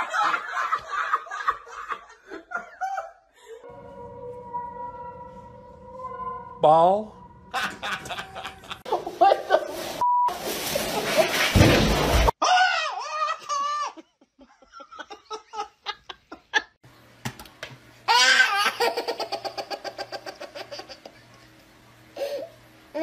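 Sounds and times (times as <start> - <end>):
baby laughing: 7.6 - 9.1, 12.5 - 14.0, 18.1 - 21.4.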